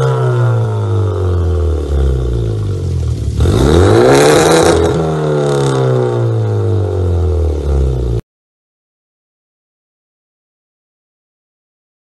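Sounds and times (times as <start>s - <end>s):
car engine revving: 0.0s - 8.2s.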